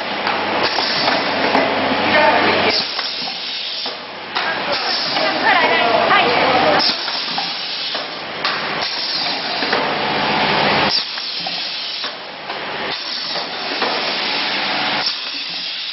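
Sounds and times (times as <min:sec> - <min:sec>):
pneumatic air hisses: 0:06.8 - 0:08.1, 0:10.9 - 0:12.2, 0:15.0 - 0:15.9.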